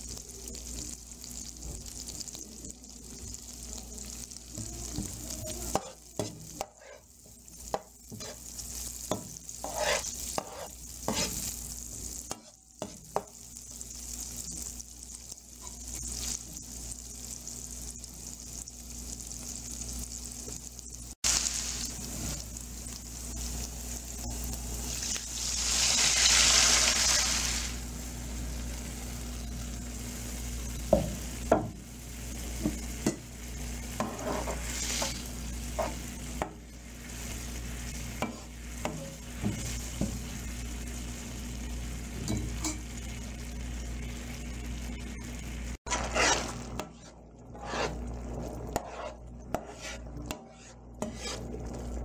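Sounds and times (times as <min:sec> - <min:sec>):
food sizzling in hot oil: 0:00.0 - 0:52.0
spatula scraping pan: 0:05.0 - 0:11.6, 0:33.9 - 0:36.1, 0:45.9 - 0:51.7.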